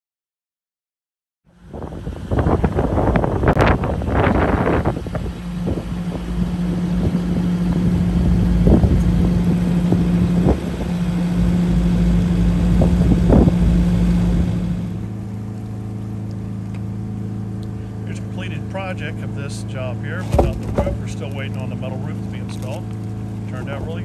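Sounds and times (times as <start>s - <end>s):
boat motor running: 1.5s - 24.0s
wind gusting on microphone: 1.6s - 15.1s
short thumps: 20.1s - 21.8s.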